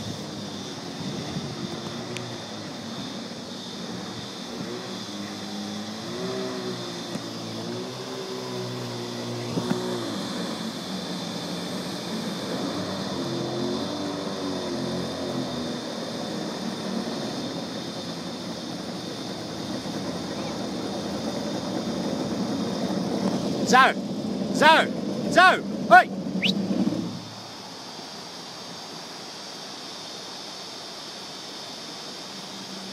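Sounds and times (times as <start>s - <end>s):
jet boat engine revving: 0.0s - 27.7s
steady hiss: 8.3s - 32.9s.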